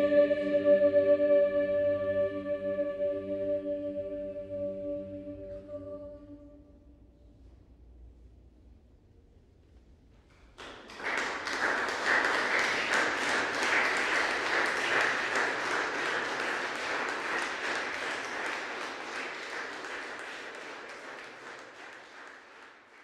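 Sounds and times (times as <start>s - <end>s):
audience applauding: 10.6s - 23.0s.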